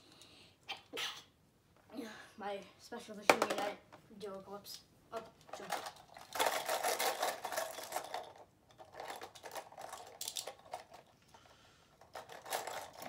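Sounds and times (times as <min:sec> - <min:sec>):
small plastic parts rattling and clicking: 0:05.2 - 0:13.0.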